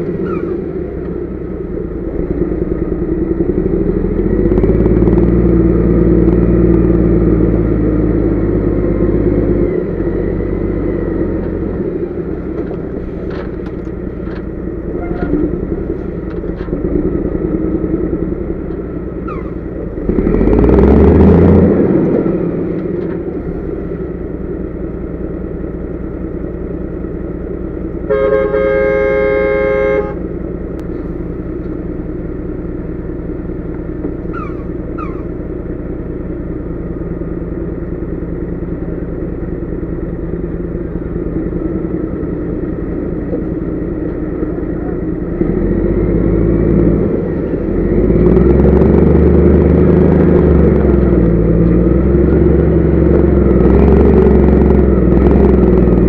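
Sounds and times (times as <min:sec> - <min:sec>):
truck diesel engine running: 0:00.0 - 0:56.0
truck horn blast: 0:28.0 - 0:30.3.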